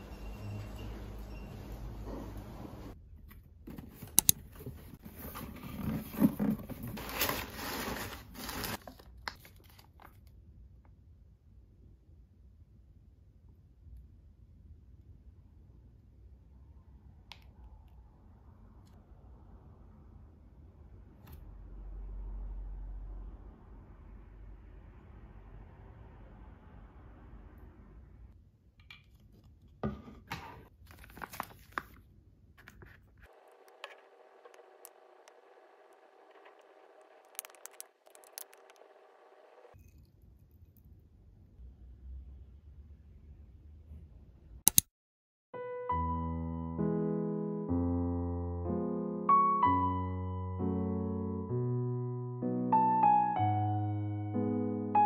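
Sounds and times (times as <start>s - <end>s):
packing paper rustling: 4.9s - 10.2s, 30.7s - 34.4s
cardboard box being opened: 5.0s - 9.0s
plastic clicks and crinkling: 36.4s - 38.9s
sharp clicks: 44.7s - 44.9s.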